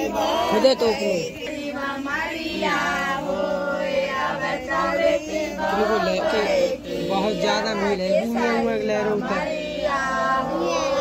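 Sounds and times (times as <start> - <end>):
high-pitched voices singing: 7.9 - 11.0.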